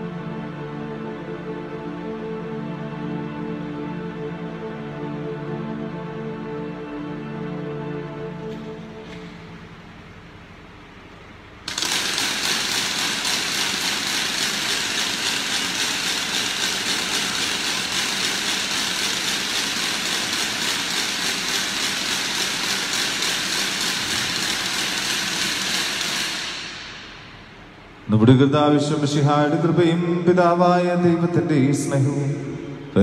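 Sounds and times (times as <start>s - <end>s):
loud mechanical rattle with hiss: 11.6s - 27.8s.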